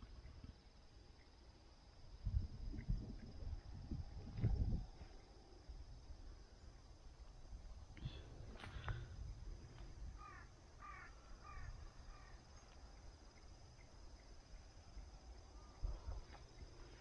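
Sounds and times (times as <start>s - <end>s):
crow cawing: 10.2s - 12.4s.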